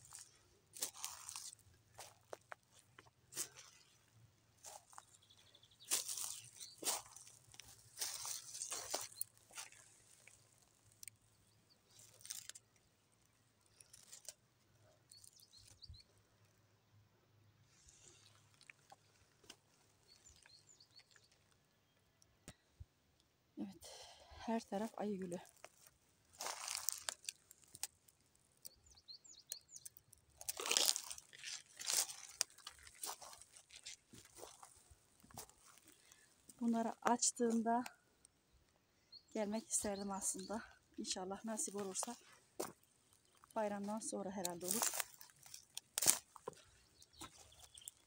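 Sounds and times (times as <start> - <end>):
leaves and stems rustling: 0.0 - 14.4, 24.7 - 28.6, 29.9 - 37.8, 39.4 - 48.0
high bird chirps: 4.9 - 7.3, 46.5 - 48.0.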